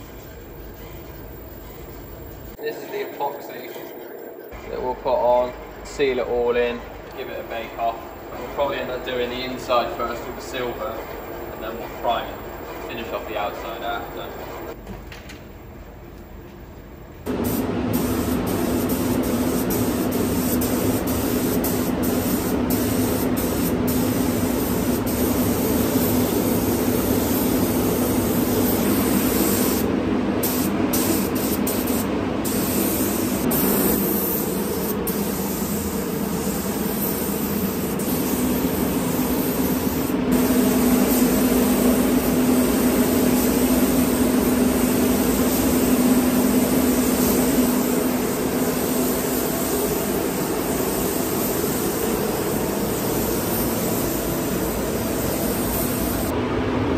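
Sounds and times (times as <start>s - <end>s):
steady low hum: 15.6s - 56.9s
spray gun hissing: 17.3s - 56.3s.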